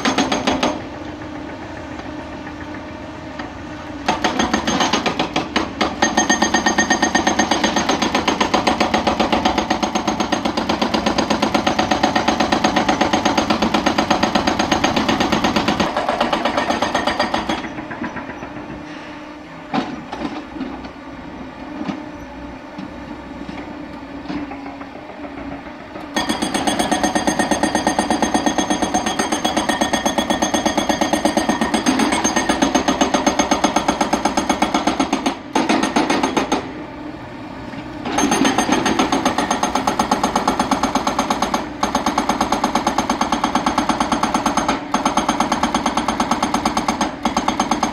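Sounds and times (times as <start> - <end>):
hydraulic breaker hammering rock: 0.0 - 18.9, 24.2 - 36.7, 38.0 - 47.9
excavator engine: 0.0 - 29.5.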